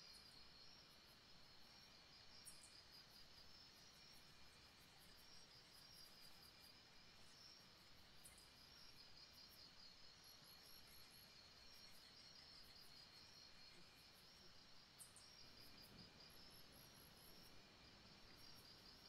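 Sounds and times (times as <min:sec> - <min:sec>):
faint background hiss: 0:00.0 - 0:19.0.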